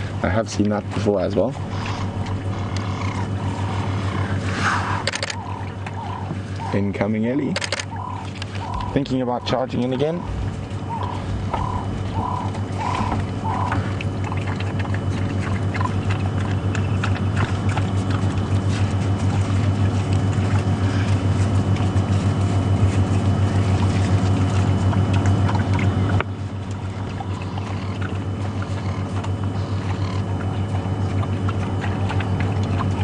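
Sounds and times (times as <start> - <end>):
vehicle engine humming: 0.0 - 33.0
short high calls: 7.9 - 13.8.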